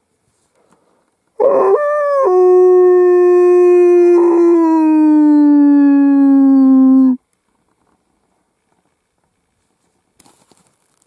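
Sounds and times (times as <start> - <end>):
dog howling: 1.4 - 7.2.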